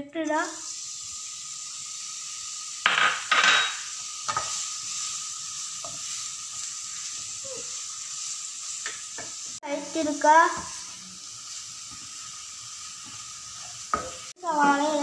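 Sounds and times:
onion sizzling in hot oil: 0.1 - 15.0
wooden spatula scraping a pan: 4.3 - 9.4.

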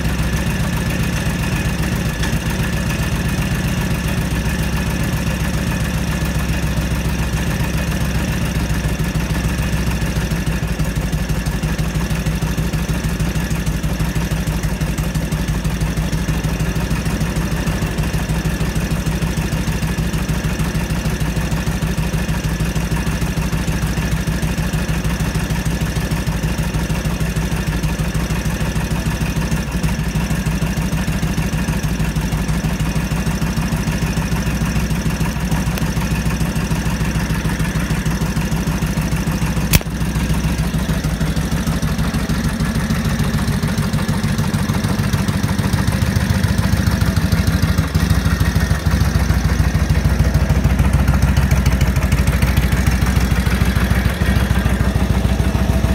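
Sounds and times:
motorcycle engine idling: 0.0 - 55.9
sharp click: 39.7 - 40.0.

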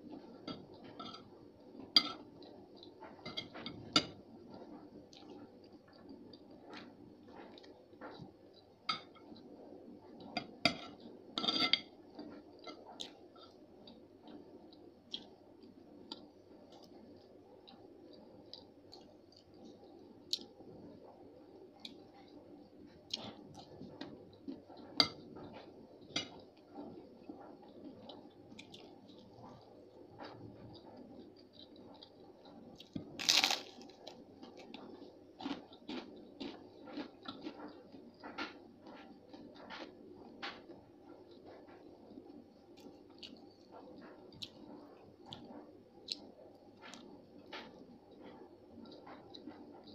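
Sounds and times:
cutlery clinking on a plate: 2.0 - 2.3, 3.1 - 4.2, 10.4 - 12.0
chewing: 12.1 - 20.6, 21.8 - 49.9
crackle: 32.8 - 34.8.

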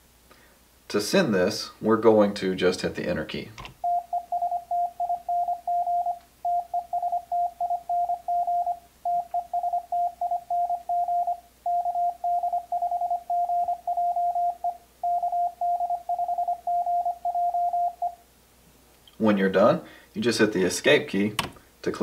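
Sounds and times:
morse code tone: 3.8 - 18.2.

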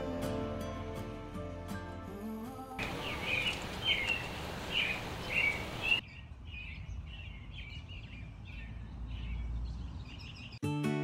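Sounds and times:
songbirds chirping: 2.8 - 10.7.

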